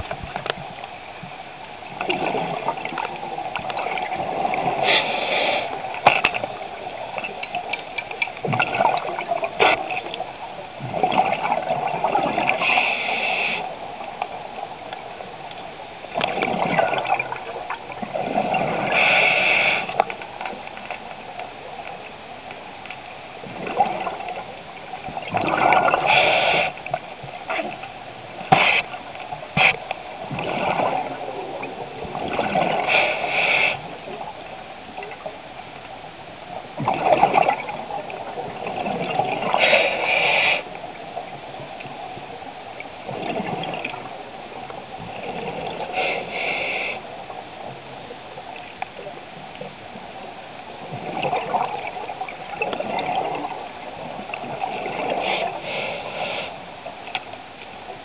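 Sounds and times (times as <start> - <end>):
exhaled bubbles underwater: 1.8 - 5.1, 8.4 - 13.0, 16.1 - 20.0, 23.4 - 29.0, 30.2 - 35.3, 36.6 - 40.1, 40.9 - 46.2, 50.7 - 56.0.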